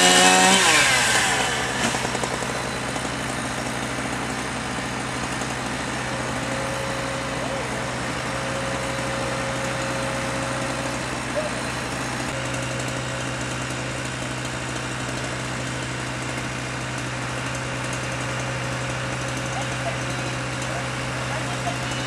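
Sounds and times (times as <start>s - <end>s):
truck engine running steadily: 0.0s - 22.0s.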